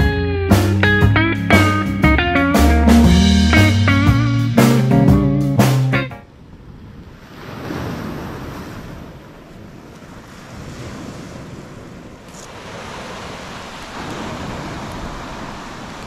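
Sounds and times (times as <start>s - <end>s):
surf washing onto beach: 6.5s - 16.0s.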